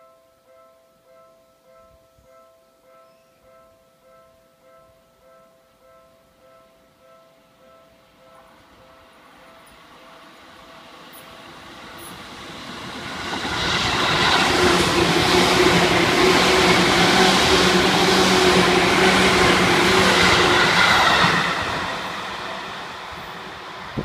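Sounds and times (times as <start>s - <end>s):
train wheels rumbling on rails: 10.6s - 24.0s.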